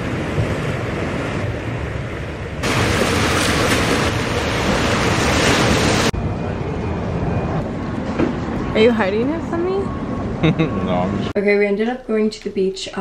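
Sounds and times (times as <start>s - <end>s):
ocean surf: 0.0s - 6.2s.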